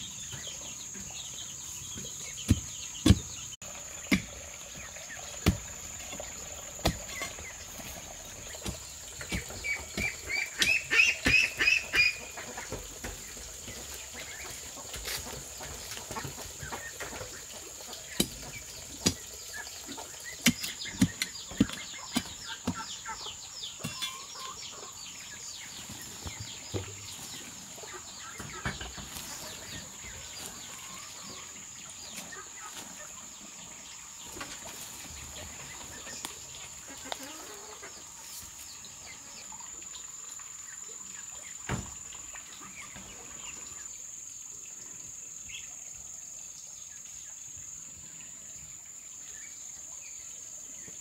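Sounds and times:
chickens clucking: 0.0 - 40.0
hoe chopping dry earth: 2.4 - 3.4, 5.4 - 7.6, 8.5 - 12.1, 20.3 - 23.0.

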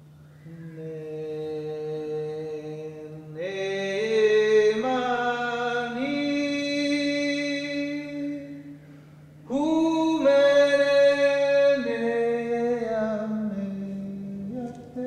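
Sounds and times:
person chanting long notes: 0.3 - 8.8.

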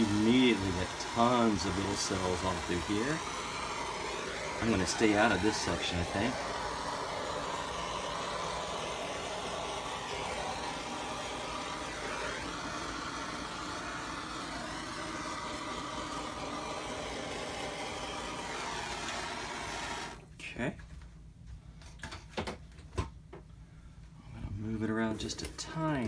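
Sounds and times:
gas torch hissing: 0.0 - 20.2.

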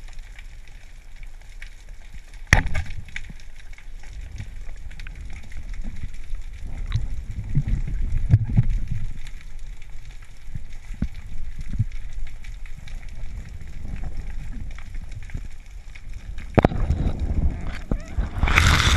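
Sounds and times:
muffled underwater rumble: 0.0 - 18.9.

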